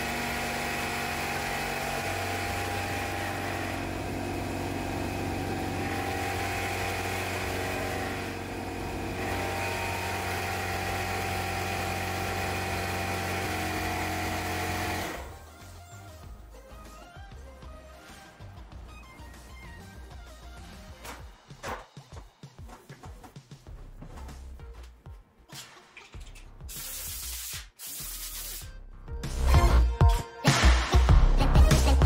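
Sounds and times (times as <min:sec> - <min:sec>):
air compressor running: 0:00.0 - 0:15.5.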